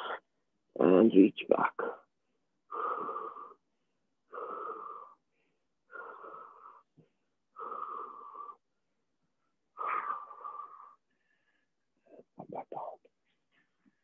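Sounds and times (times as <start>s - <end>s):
man breathing heavily: 2.6s - 12.1s.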